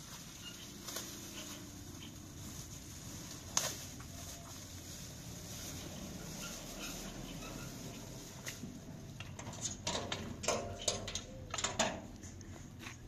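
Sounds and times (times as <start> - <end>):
plastic bags crackling: 0.0 - 10.9
puppies squeaking and whimpering: 6.3 - 8.1.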